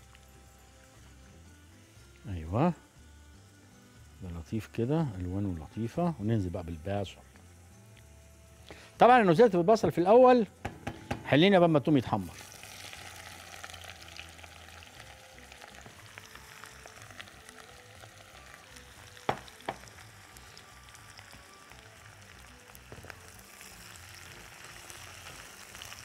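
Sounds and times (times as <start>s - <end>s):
onions sizzling in a pot: 0.0s - 26.0s
sharp knocks: 10.6s - 11.4s, 19.3s - 19.8s.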